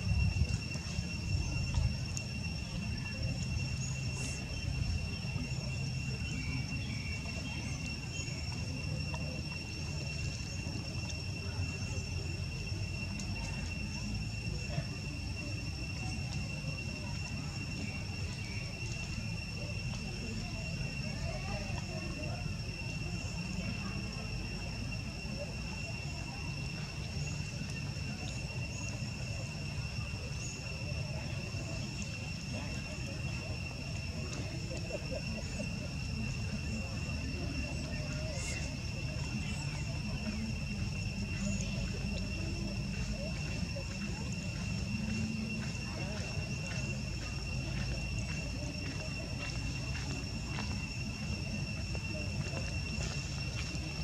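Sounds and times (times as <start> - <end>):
high-pitched insect drone: 0.0 - 54.0
steady high-pitched whine: 0.0 - 54.0.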